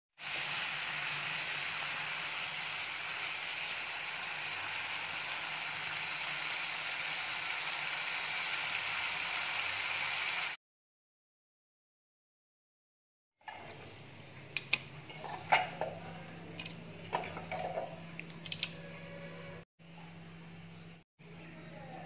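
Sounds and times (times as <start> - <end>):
food sizzling in a pan: 0.2 - 10.6.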